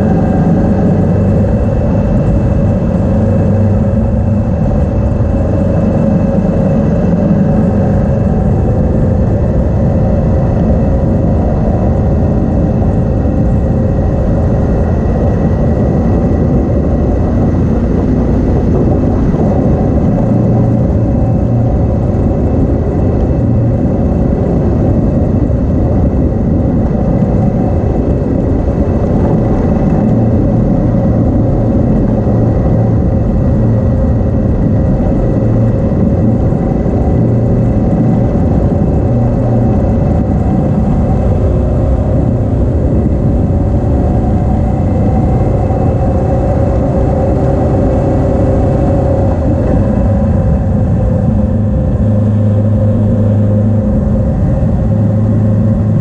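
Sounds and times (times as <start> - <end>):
motorcycle engine cruising: 0.0 - 56.0
road noise: 0.0 - 56.0
wind noise: 0.0 - 56.0.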